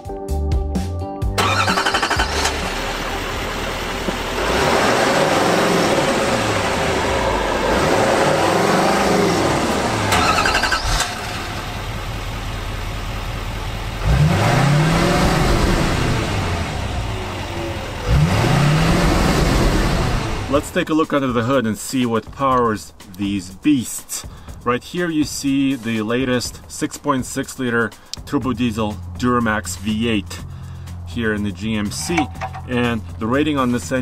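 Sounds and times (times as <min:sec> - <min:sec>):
diesel engine revving: 0:01.4 - 0:20.8.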